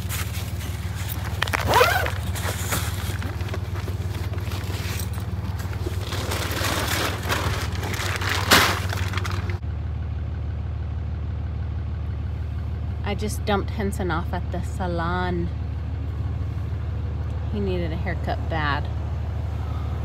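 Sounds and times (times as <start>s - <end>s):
bags rustling: 0.0s - 9.6s
plastic wrap crinkling: 0.0s - 9.6s.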